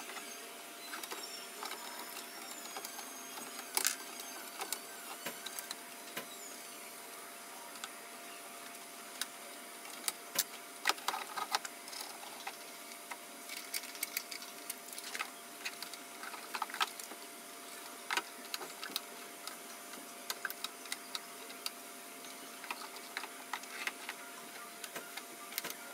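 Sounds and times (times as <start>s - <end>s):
plastic parts clicking: 9.9s - 17.1s, 18.1s - 19.6s, 24.8s - 25.8s.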